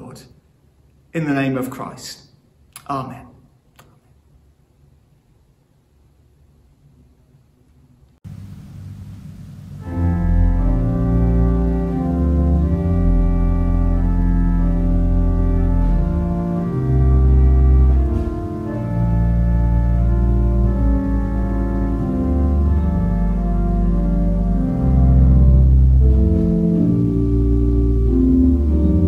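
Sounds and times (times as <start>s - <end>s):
church organ chords: 8.3s - 29.0s.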